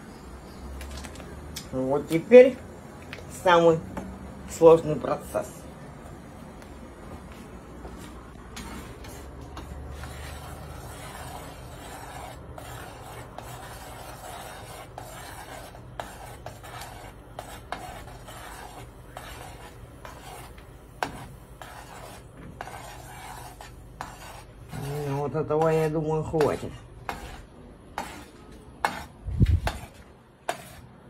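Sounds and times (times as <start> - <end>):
spoon stirring in saucepan: 8.6 - 30.8.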